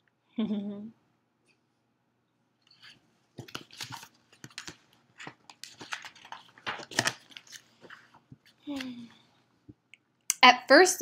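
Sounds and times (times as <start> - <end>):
book pages rustling: 2.6 - 9.0.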